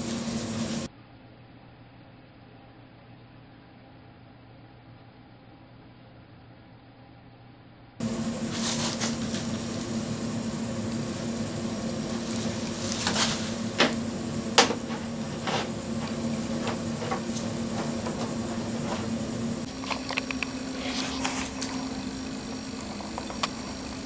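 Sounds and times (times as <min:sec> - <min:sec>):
steady hum: 0:00.0 - 0:24.0
plastic sheeting crinkling: 0:08.1 - 0:23.2.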